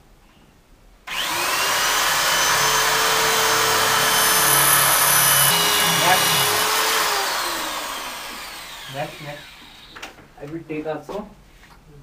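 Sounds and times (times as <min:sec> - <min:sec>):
electric drill boring into masonry: 0:01.1 - 0:10.1.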